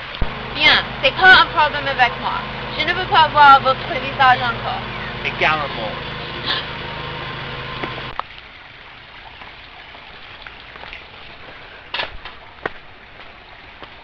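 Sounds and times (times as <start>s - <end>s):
steady low hum: 0.0s - 13.6s
shallow creek rushing: 0.0s - 14.0s
knocks on stream bed: 7.8s - 8.3s, 10.1s - 14.0s.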